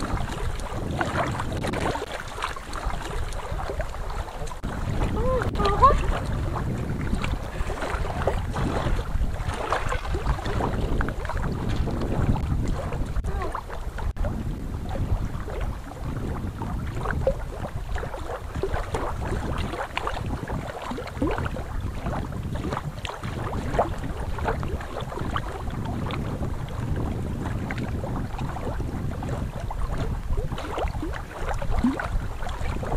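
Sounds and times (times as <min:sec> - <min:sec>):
water rushing at a weir: 0:00.0 - 0:32.9
wind buffeting microphone: 0:00.0 - 0:32.9.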